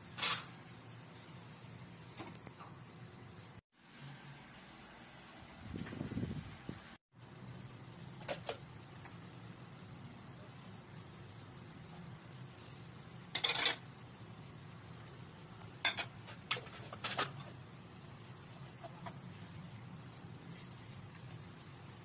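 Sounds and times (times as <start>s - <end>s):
utensil scraping a frying pan: 0.1s - 0.6s, 15.8s - 17.6s.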